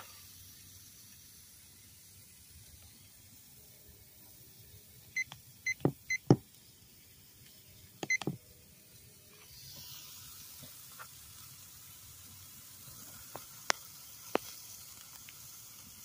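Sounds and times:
steaks sizzling on grill: 0.0 - 16.0
thermometer beeps: 5.1 - 6.4, 8.0 - 8.4.

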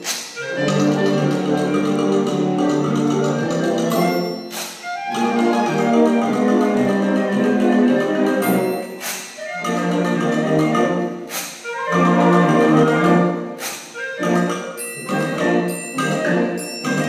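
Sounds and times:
concert band playing: 0.0 - 17.0
typewriter bell ding: 4.0 - 4.8.

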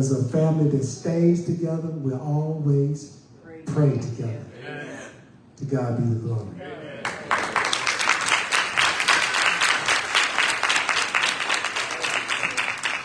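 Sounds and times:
congregation applauding: 7.0 - 13.0.

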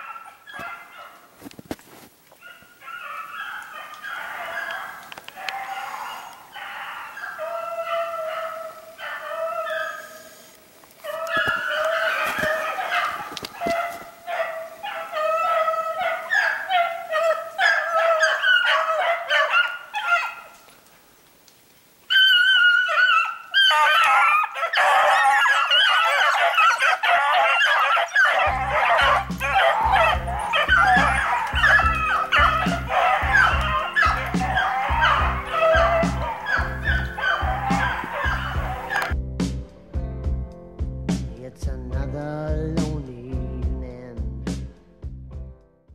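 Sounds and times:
hounds baying: 0.0 - 1.3, 2.4 - 20.7, 22.1 - 39.2
music: 28.4 - 45.9.

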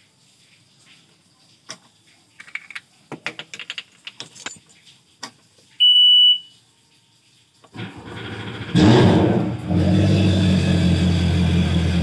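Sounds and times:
keys jangling on a key ring: 4.2 - 5.0
high-pitched warning beep: 5.8 - 6.5.

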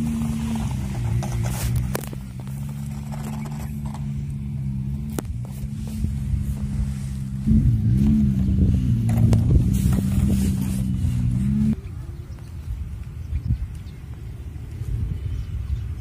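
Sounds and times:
engine humming: 0.0 - 16.0.

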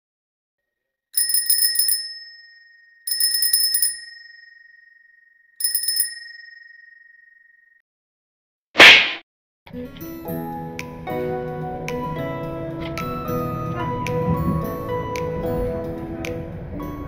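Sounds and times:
bicycle bell ringing: 1.2 - 7.8
short loud snap: 8.8 - 9.2.

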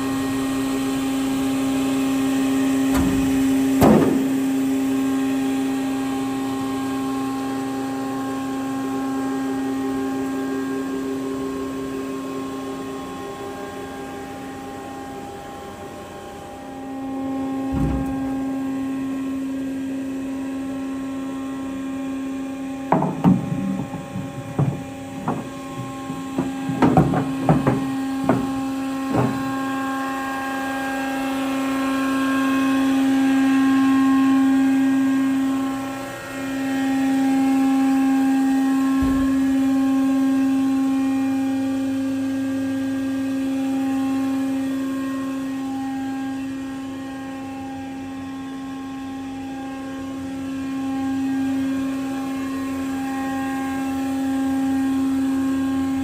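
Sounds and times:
band saw motor hum: 0.0 - 56.0
sharp knocks: 2.9 - 4.3, 17.7 - 18.5, 22.9 - 29.5.

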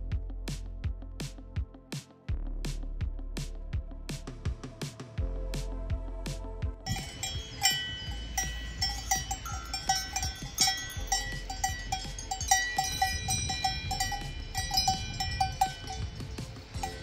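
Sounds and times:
cowbells clanking: 6.9 - 17.0
steady low rumble: 6.9 - 17.0.

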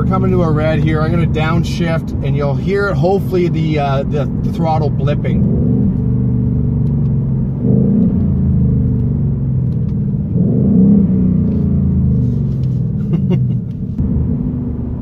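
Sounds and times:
car engine revving on downshifts: 5.2 - 15.0.

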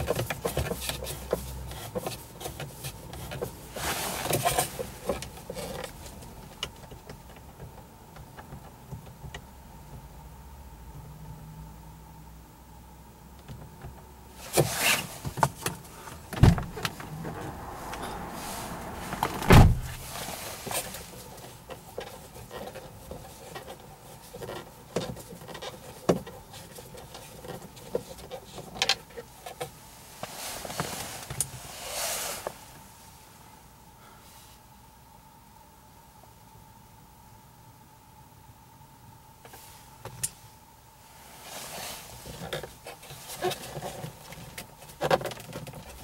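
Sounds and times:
scraping rustle: 0.0 - 6.3, 14.4 - 32.8, 41.2 - 46.0.

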